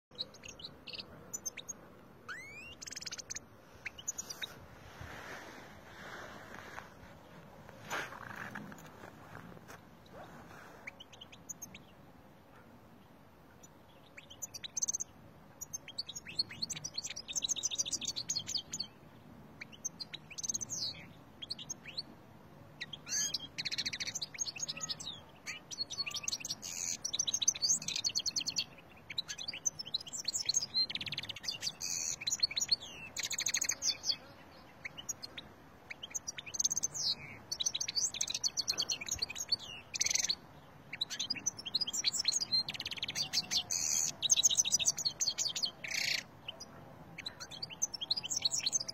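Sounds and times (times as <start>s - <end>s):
goldfinch singing: 0.1s - 4.5s, 22.8s - 48.9s.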